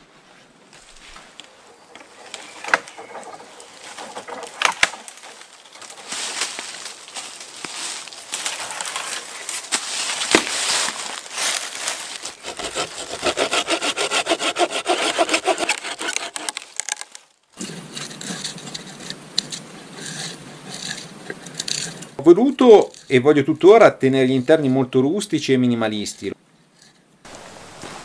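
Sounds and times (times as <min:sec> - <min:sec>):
wood cracking sharply: 0:01.3 - 0:11.2, 0:12.2 - 0:18.8
hand saw cutting wood: 0:12.3 - 0:22.2.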